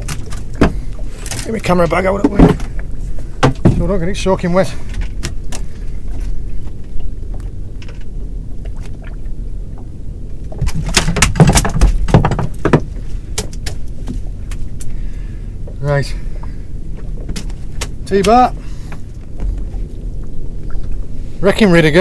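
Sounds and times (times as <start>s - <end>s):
steady low rumble: 0.0s - 22.0s
knocks on boat hull: 11.0s - 13.5s.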